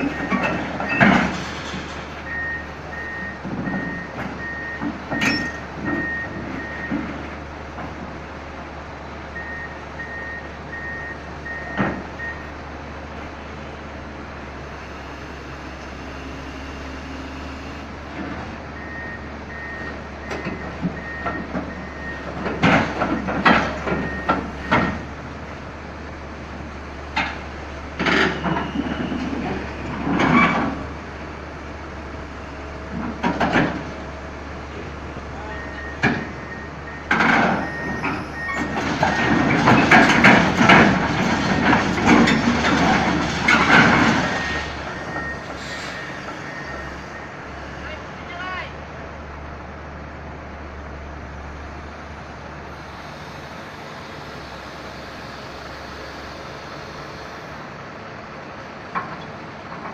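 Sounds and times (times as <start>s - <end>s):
machine clanks and knocks: 0.0s - 2.2s, 20.2s - 25.1s, 32.9s - 34.0s, 36.0s - 45.4s
diesel engine hum: 0.0s - 59.9s
travel alarm beeping: 35.4s - 38.6s.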